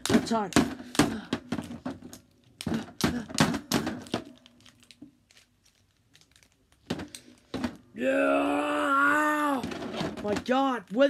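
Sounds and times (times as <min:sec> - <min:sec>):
plastic figures clacking: 0:00.0 - 0:07.8.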